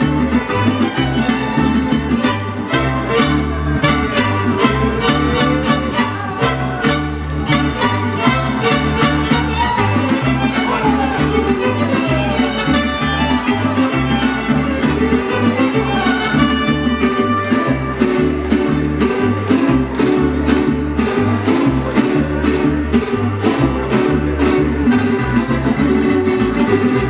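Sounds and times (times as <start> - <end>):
violins playing melody: 0.0 - 17.9
bass line: 0.0 - 27.0
strummed guitars: 0.0 - 27.0.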